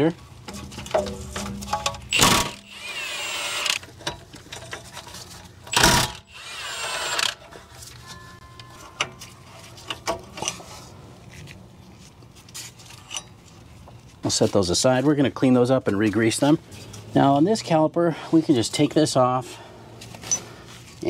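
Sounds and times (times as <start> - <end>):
impact wrench running: 1.8 - 3.8, 5.7 - 7.5.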